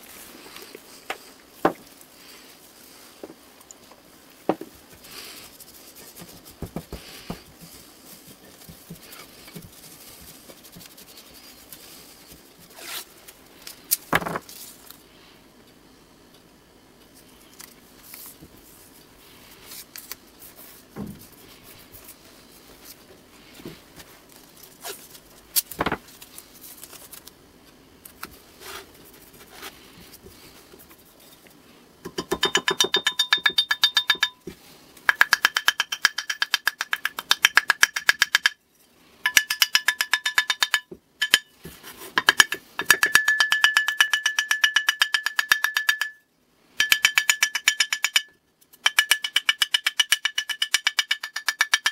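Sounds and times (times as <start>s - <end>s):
hammer tapping on metal: 32.0s - 34.5s, 35.1s - 38.6s, 39.3s - 41.5s, 42.2s - 46.2s, 46.8s - 51.9s.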